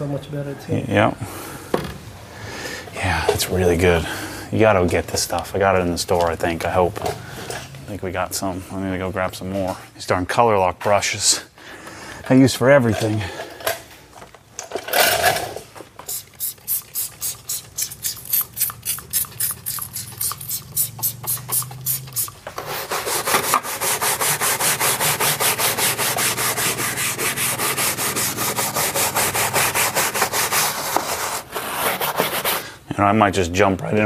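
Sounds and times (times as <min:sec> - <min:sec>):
bristle brush scrubbing plastic: 0:16.0 - 0:32.7.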